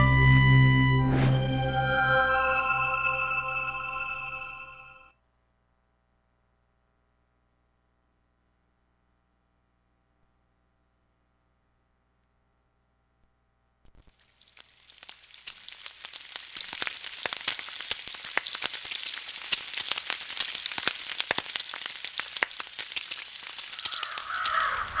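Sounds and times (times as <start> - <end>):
frying sizzle with pops: 13.9 - 25.0.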